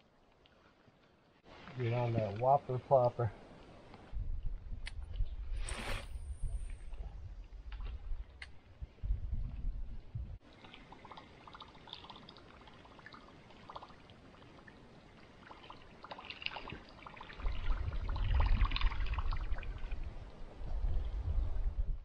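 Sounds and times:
wind rumble on microphone: 0:04.0 - 0:10.4, 0:16.7 - 0:22.0
lake waves lapping on boulder: 0:10.4 - 0:20.2.

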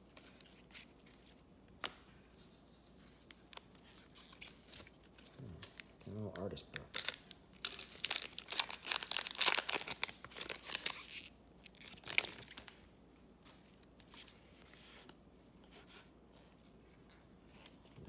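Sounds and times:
foil wrapper tearing and crinkling: 0:03.3 - 0:12.7.

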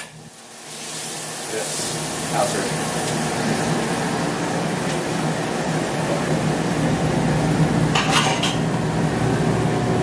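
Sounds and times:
kitchen machine hum: 0:00.0 - 0:10.0
metal utensil clattering on dishes: 0:08.0 - 0:08.7.

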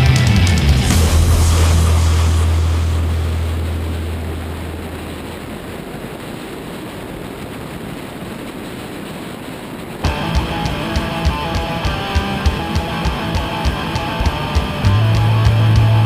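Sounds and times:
low hum: 0:00.0 - 0:08.0, 0:10.0 - 0:16.0
wind and road noise: 0:00.8 - 0:10.1.

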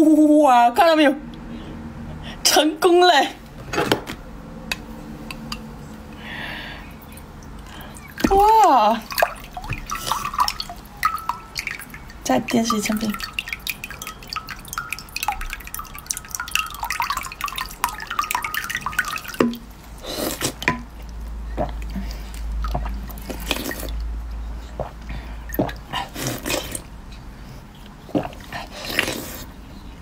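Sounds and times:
water trickling into a glass: 0:07.0 - 0:19.7.

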